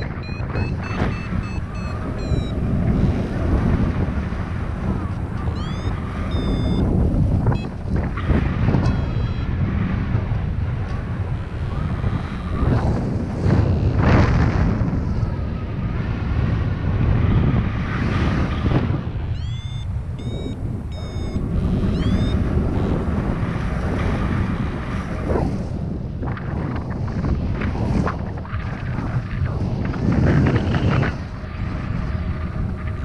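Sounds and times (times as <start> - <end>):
high-pitched variometer beeps: 0.0 - 2.8, 5.0 - 9.6, 19.3 - 22.8
wind buffeting microphone: 0.0 - 33.0.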